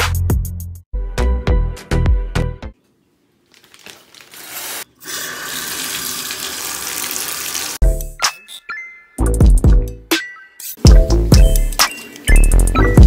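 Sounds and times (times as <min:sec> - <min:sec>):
water running from shower valve: 0:04.4 - 0:07.8.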